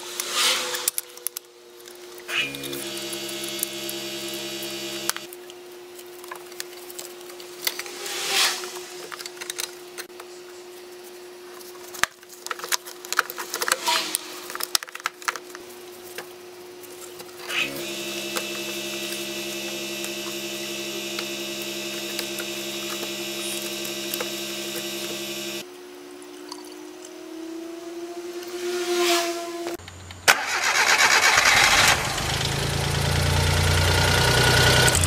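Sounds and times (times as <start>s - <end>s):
steady machine hum: 1.9s - 8.0s, 15.7s - 25.9s
clicks and scraping of car parts: 8.7s - 10.1s.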